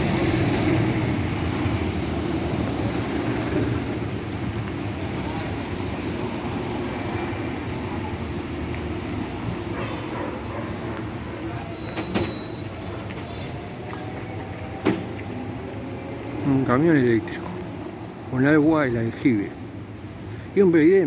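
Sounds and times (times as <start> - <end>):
high-pitched squeal: 3.2 - 10.1, 11.7 - 17.4.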